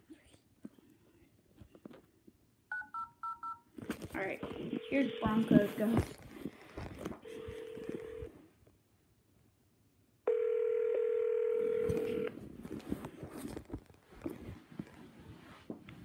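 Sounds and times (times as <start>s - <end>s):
rustling and tapping of tablet: 0.6s - 2.4s, 3.2s - 8.8s, 11.6s - 16.0s
phone ringback tone: 2.7s - 3.6s, 7.2s - 8.3s, 10.3s - 12.3s.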